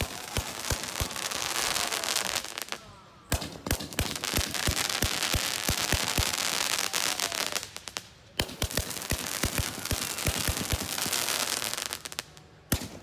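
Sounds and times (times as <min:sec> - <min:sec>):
fireworks bangs: 0:00.0 - 0:13.0
fireworks crackling: 0:00.0 - 0:13.0.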